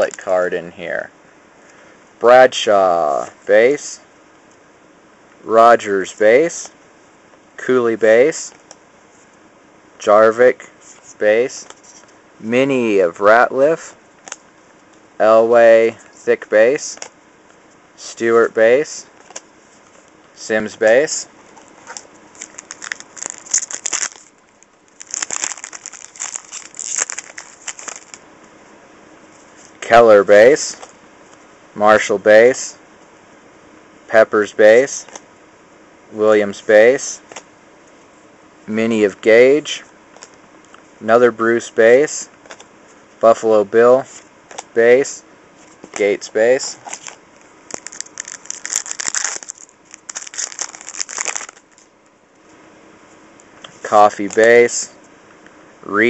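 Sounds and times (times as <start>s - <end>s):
foil wrapper tearing and crinkling: 22.3s - 28.2s, 46.9s - 51.9s.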